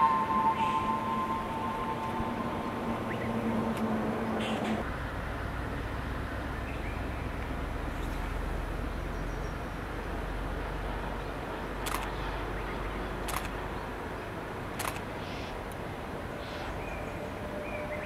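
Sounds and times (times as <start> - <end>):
outdoor rumble and hiss: 0.0 - 18.0
camera shutter clicks: 11.8 - 12.1, 13.3 - 13.6, 14.8 - 15.0.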